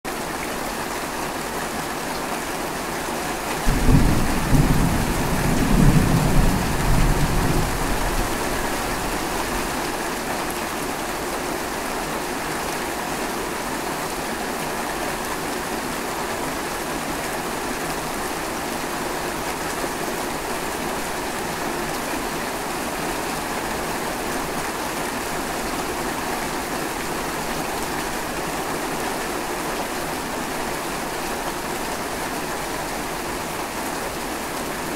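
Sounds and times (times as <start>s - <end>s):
heavy rain falling: 0.1s - 34.9s
low roll of thunder: 3.6s - 9.1s.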